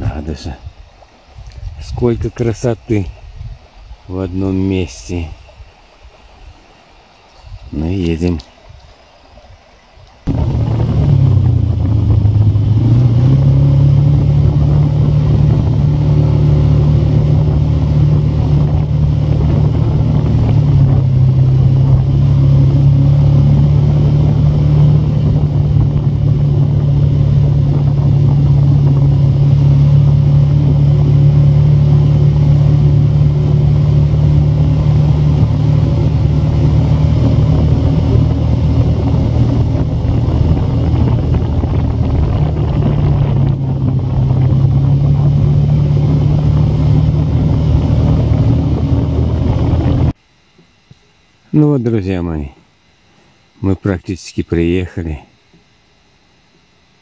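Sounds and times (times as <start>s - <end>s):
vehicle engine driving: 10.2s - 50.2s.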